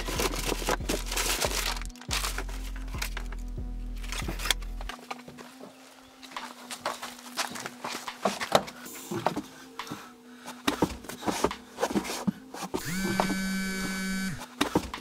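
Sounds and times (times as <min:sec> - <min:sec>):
rummaging knocks and rustles: 0:00.0 - 0:03.4, 0:04.0 - 0:09.6
steady buzzing tone: 0:12.8 - 0:14.4.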